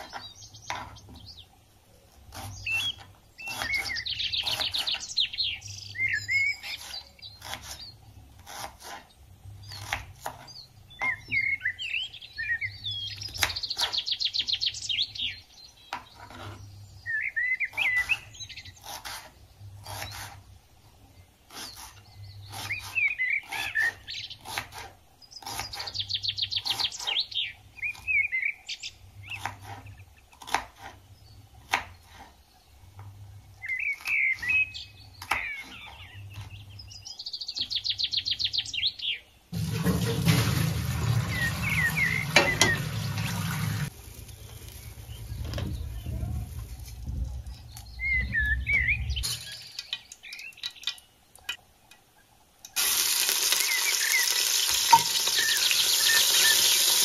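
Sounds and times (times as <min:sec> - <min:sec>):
songbird trilling and chirping: 0:02.3 - 0:08.0, 0:09.6 - 0:18.9, 0:25.2 - 0:30.0, 0:33.4 - 0:39.4, 0:41.3 - 0:52.0, 0:53.6 - 0:56.8.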